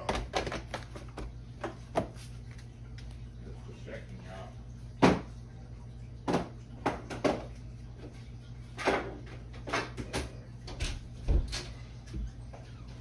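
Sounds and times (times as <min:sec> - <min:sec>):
containers knocking and clicking: 0:00.0 - 0:02.1
steady low hum: 0:00.0 - 0:13.0.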